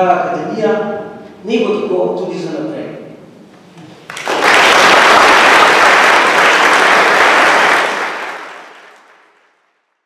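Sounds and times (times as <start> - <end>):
audience applauding: 4.0 - 9.8.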